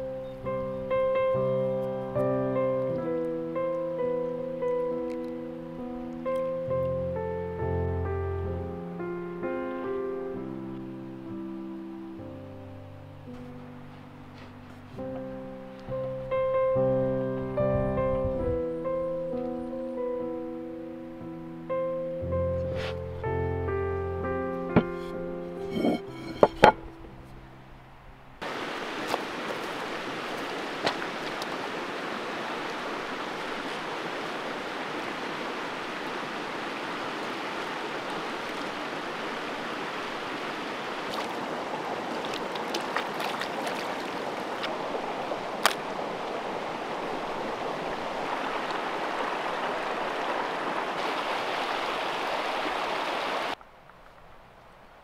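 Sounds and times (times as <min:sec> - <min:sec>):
stream running over stones: 0:24.7 - 0:27.0, 0:28.4 - 0:54.5
bowl knocking on wooden plate: 0:24.8 - 0:26.9.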